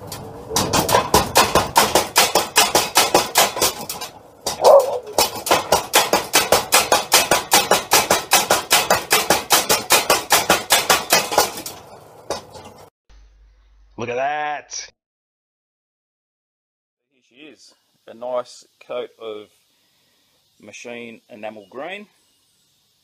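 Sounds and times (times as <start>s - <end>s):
power hammer pounding steel: 0.0s - 12.8s.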